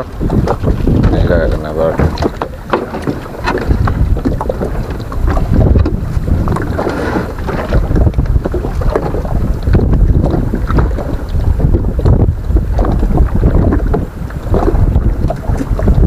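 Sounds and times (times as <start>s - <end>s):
water lapping against boat: 0.0s - 16.0s
wind buffeting microphone: 0.0s - 16.0s.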